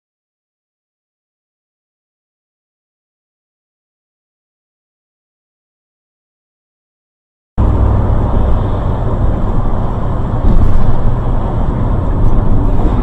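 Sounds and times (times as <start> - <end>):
car engine and road noise: 7.6 - 13.0.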